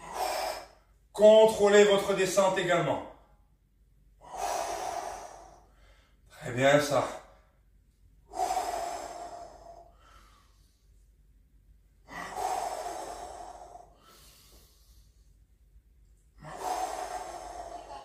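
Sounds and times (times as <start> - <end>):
man breathing hard: 0.0 - 1.1, 4.1 - 6.4, 7.0 - 11.2, 12.0 - 15.6, 16.2 - 18.0.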